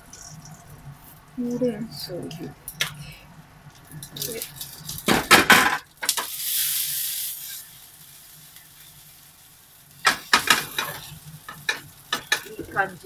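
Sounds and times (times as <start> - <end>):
food sizzling in oil: 3.7 - 13.0.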